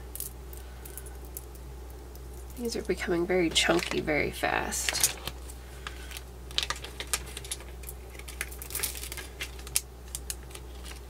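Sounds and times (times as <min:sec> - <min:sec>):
beads clicking and rattling: 0:00.1 - 0:02.9, 0:06.5 - 0:11.0.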